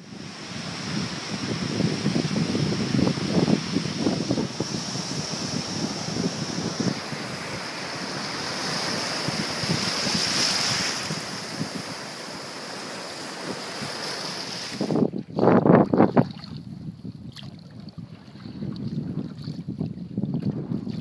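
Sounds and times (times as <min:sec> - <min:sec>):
surf breaking on beach: 0:00.0 - 0:15.1.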